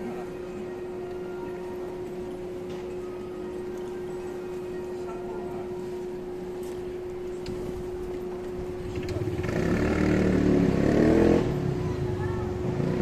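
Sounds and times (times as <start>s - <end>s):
steady hum: 0.0s - 13.0s
vehicle engine accelerating: 8.7s - 13.0s.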